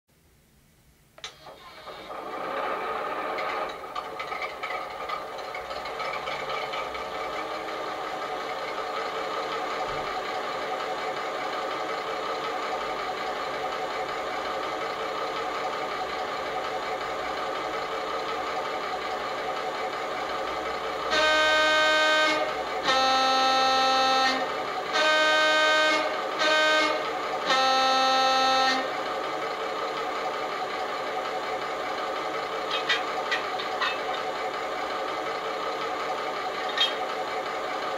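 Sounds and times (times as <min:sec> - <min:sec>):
model diesel engine idling: 0:01.3 - 0:37.9
two-tone horn blasts: 0:21.0 - 0:29.0.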